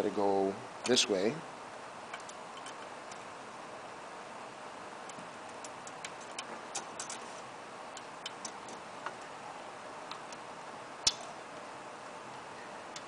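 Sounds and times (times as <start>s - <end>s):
metallic clicks of wire and spring: 11.1s - 11.3s.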